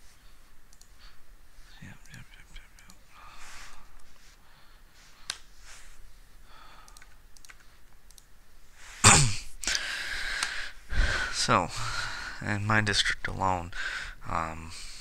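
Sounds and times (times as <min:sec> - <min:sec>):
computer mouse click: 0:00.7 - 0:01.0, 0:02.0 - 0:03.0, 0:06.8 - 0:08.3.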